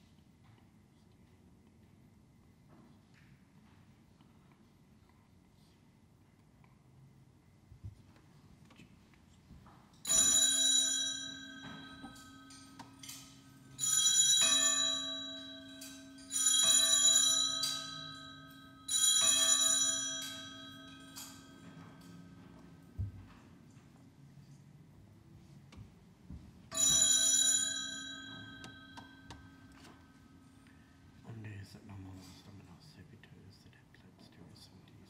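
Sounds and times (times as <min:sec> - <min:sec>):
hand-held bells ringing: 0:10.0 - 0:22.7, 0:26.7 - 0:30.6.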